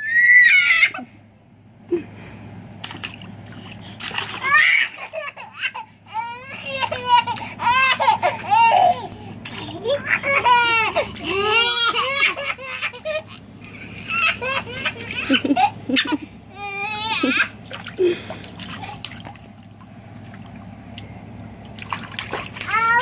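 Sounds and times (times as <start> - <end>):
light water splashing: 2.6 - 5.1, 17.6 - 23.0
babies laughing and babbling: 4.2 - 18.2.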